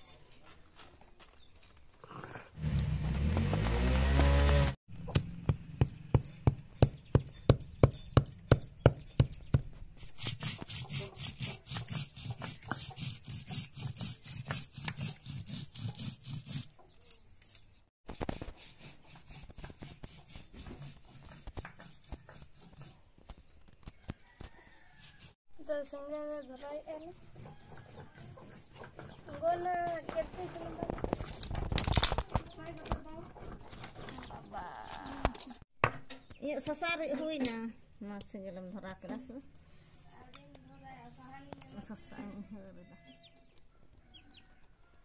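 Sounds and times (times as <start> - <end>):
stone scraping and grinding spices: 10.0 - 17.3.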